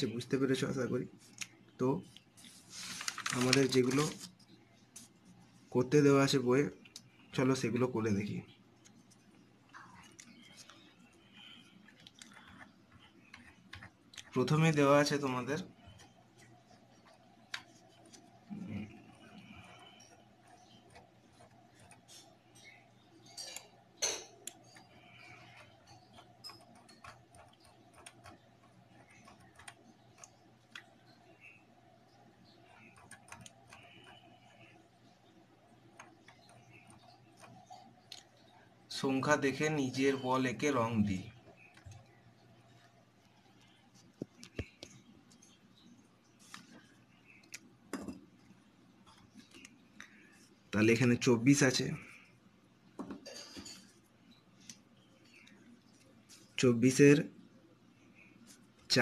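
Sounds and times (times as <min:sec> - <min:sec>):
faint steady hum: 0:00.0 - 0:59.0
pens clicking and tapping on notebook: 0:11.9 - 0:14.7, 0:24.5 - 0:31.0, 0:32.8 - 0:34.7
computer mouse clicks: 0:32.4 - 0:34.7.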